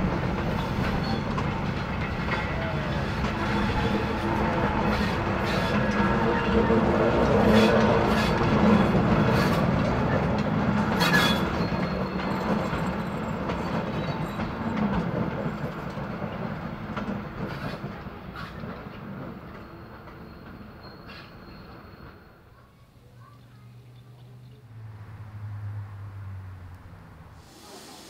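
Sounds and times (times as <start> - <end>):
train wheels clicking over rail joints: 0.0 - 22.2.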